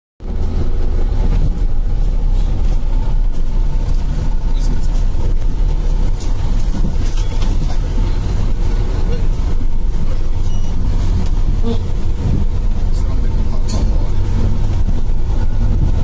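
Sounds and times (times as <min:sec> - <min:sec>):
engine and road rumble: 0:00.2 - 0:16.0
light rattles and knocks: 0:00.2 - 0:16.0.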